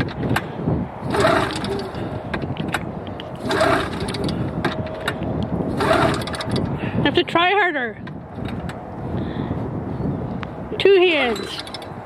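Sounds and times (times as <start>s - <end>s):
pull-starter rope whir: 0.0s - 6.8s, 11.2s - 12.0s
engine cranking clicks: 1.1s - 6.7s, 11.3s - 12.0s.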